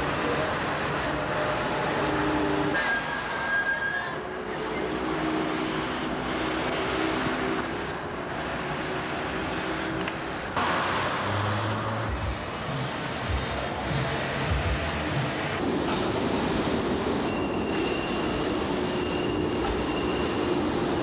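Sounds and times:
passing cars: 0:04.3 - 0:17.2.

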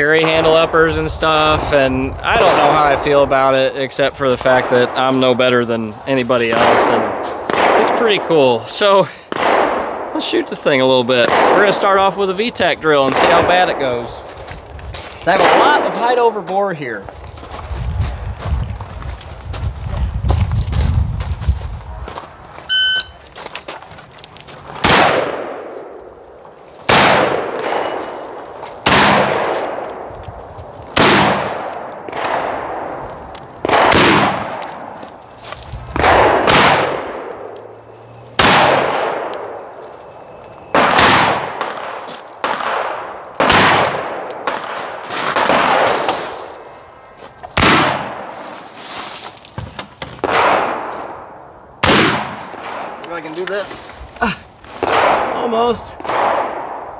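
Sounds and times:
rifle shots with echo: 0:02.3 - 0:03.4, 0:04.3 - 0:05.6, 0:06.3 - 0:08.6, 0:09.3 - 0:14.2, 0:15.3 - 0:16.4, 0:24.8 - 0:26.0, 0:26.8 - 0:30.1, 0:30.9 - 0:33.0, 0:33.6 - 0:35.0, 0:36.0 - 0:37.8, 0:38.4 - 0:39.8, 0:40.7 - 0:46.2, 0:47.6 - 0:48.4, 0:50.2 - 0:53.0, 0:54.8 - 0:56.9.

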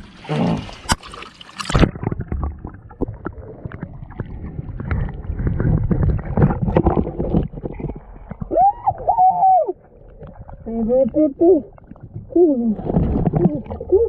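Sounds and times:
underwater water movement and bubbling: 0:00.0 - 0:14.0
small clicks and knocks underwater: 0:00.9 - 0:08.6, 0:09.9 - 0:12.3.

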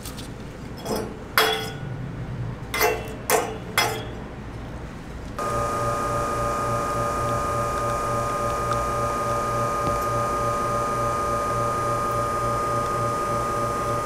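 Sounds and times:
metal pitcher clinking on metal grate: 0:00.7 - 0:01.9, 0:02.7 - 0:04.2
espresso machine pump humming: 0:05.4 - 0:14.0.

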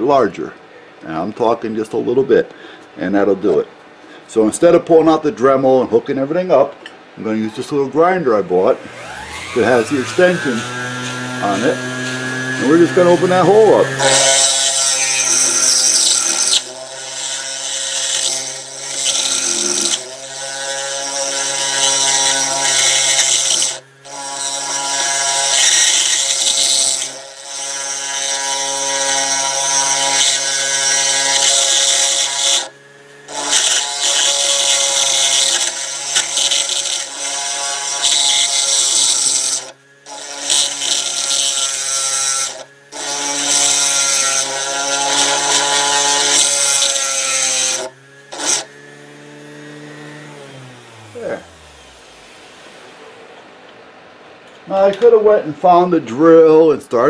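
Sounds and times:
rotary grinder whining: 0:08.5 - 0:53.6.

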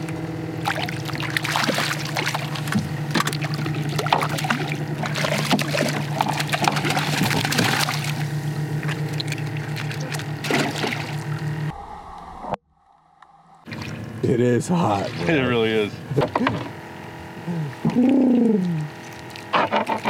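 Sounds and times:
water splashing and trickling: 0:00.0 - 0:11.7, 0:13.6 - 0:15.9, 0:18.3 - 0:20.0
low motor hum: 0:00.0 - 0:20.0.

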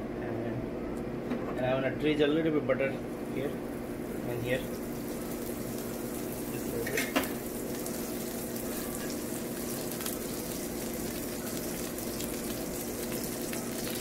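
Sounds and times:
steady low hum: 0:00.0 - 0:14.0
butter sizzling in a frying pan: 0:03.2 - 0:14.0.

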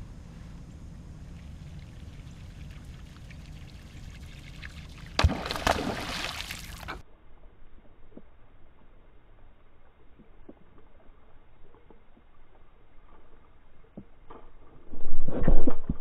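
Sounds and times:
low steady rumble: 0:00.0 - 0:16.0
fish splashing in water: 0:01.4 - 0:07.0.

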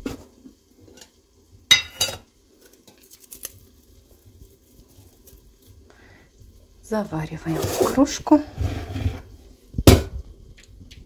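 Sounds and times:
crinkling and rustling of tea bags: 0:02.5 - 0:06.1.

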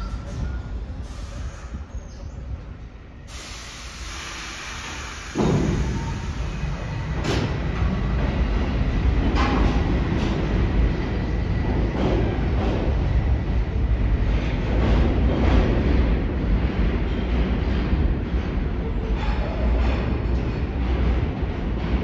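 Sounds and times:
train motors and wheels rumbling: 0:00.0 - 0:22.0
air hiss: 0:03.3 - 0:06.8.

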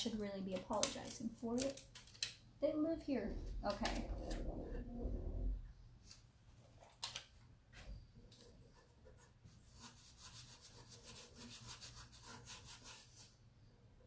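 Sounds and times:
scratchy rubbing on wood: 0:08.7 - 0:13.3.

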